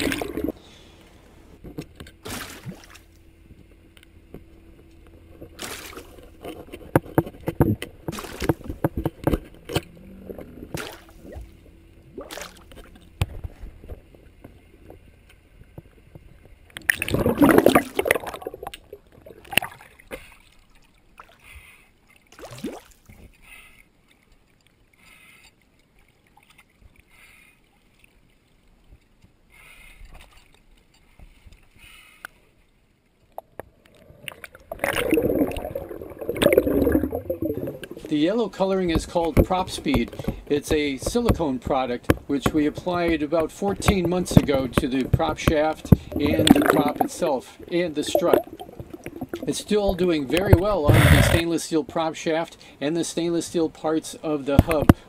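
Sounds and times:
loud underwater burst: 0.0s - 1.6s, 16.9s - 19.7s, 33.7s - 38.3s, 45.6s - 51.4s
water splashing: 0.0s - 3.6s, 4.4s - 31.8s, 33.2s - 55.0s
underwater bubbling: 0.0s - 29.0s, 32.8s - 51.6s
underwater knocks: 33.4s - 38.1s, 38.9s - 51.4s.

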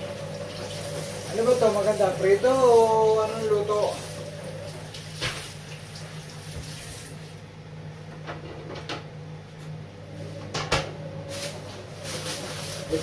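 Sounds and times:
tap running into metal sink: 4.9s - 5.6s
knocks and clatters at sink: 8.1s - 9.1s.

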